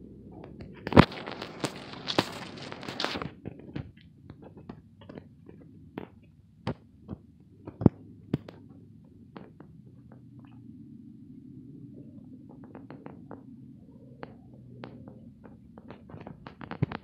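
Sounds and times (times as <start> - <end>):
rustling: 0.4 - 8.8.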